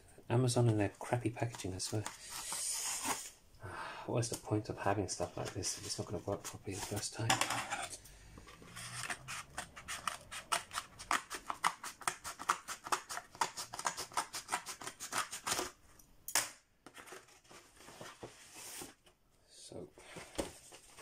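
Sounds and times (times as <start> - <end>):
scissors snipping cardboard: 9.0 - 15.7.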